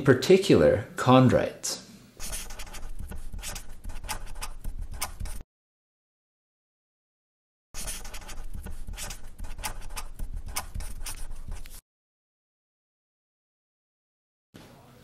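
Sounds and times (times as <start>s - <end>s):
marker pen writing: 2.2s - 5.4s, 7.8s - 11.8s.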